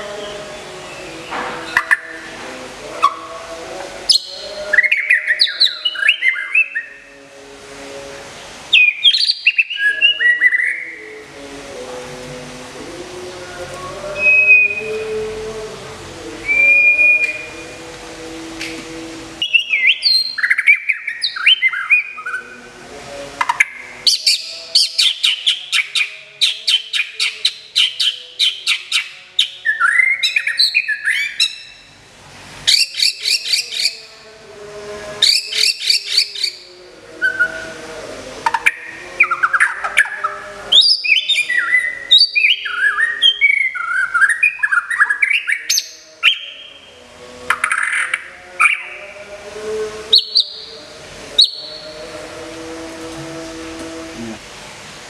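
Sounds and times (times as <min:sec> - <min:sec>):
bird singing whistled song: 0:04.1 - 0:07.0, 0:08.7 - 0:11.0, 0:14.2 - 0:14.9, 0:16.4 - 0:17.5, 0:19.4 - 0:22.4, 0:23.6 - 0:31.9, 0:32.7 - 0:34.0, 0:40.8 - 0:46.8, 0:50.2 - 0:50.7, 0:51.4 - 0:51.9.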